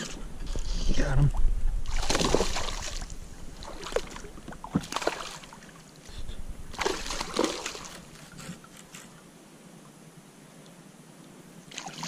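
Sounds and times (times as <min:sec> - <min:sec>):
fish splashing at water surface: 0:01.9 - 0:05.7, 0:06.7 - 0:08.6, 0:11.7 - 0:12.0.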